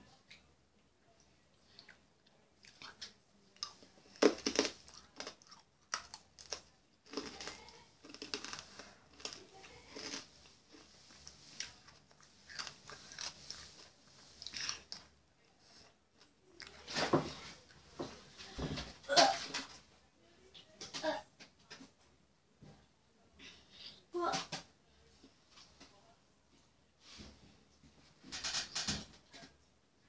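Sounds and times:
crunching hard candy: 3.6 - 15.1.

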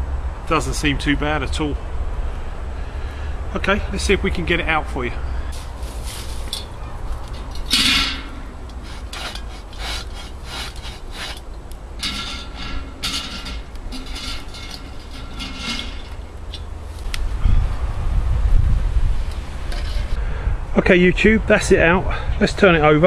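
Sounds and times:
scraping against a pot: 5.6 - 17.2, 19.2 - 20.2.

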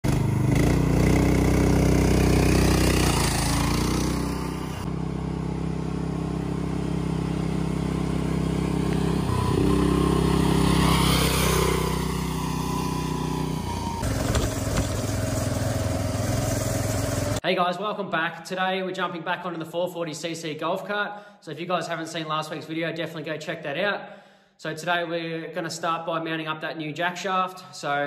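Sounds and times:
petrol engine running under load: 0.1 - 17.4.

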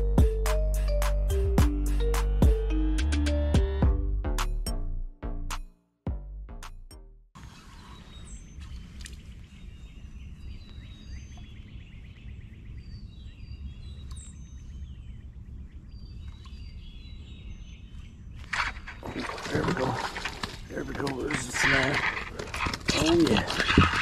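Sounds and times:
birds calling and chirping: 7.4 - 24.0.

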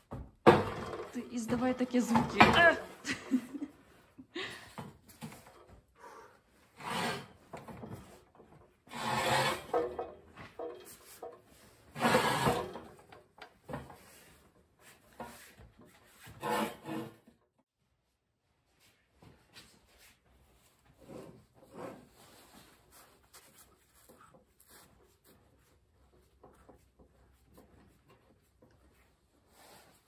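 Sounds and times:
rasping scraping bursts: 6.7 - 7.8, 8.9 - 10.1, 11.9 - 13.0, 16.2 - 17.3.

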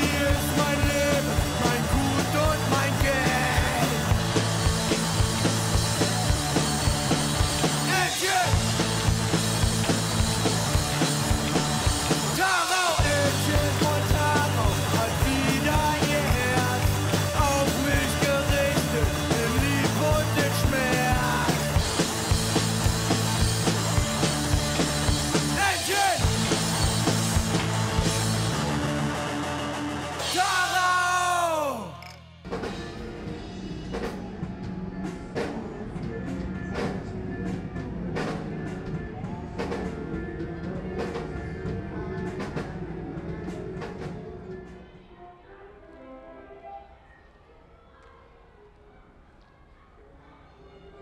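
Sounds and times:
electric bass: 0.0 - 31.9
drum kit beat: 0.0 - 35.6
rock band playing: 0.0 - 44.2.

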